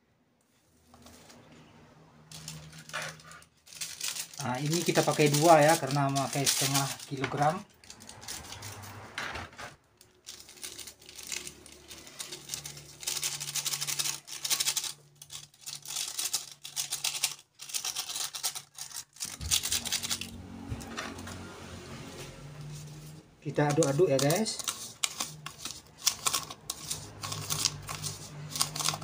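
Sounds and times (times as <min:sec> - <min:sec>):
plastic sachets crinkling: 0:02.3 - 0:08.8, 0:10.0 - 0:20.5, 0:23.4 - 0:29.0.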